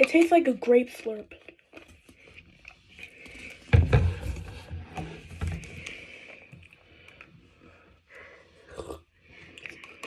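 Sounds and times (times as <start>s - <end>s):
plastic bottles thumping on desk: 3.7s - 5.7s.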